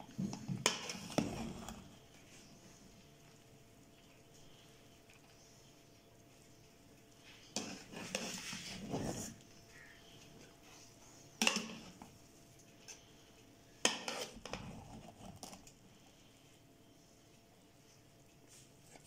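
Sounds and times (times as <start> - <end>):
metal spoon scraping a pot: 7.5 - 9.4, 13.8 - 15.4.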